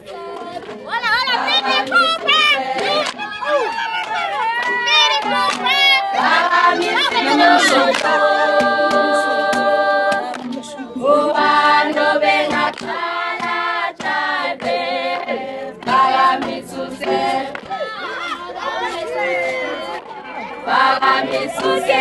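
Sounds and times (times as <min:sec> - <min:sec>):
group singing a cappella: 0:00.0 - 0:03.4, 0:05.2 - 0:17.6, 0:19.3 - 0:22.0.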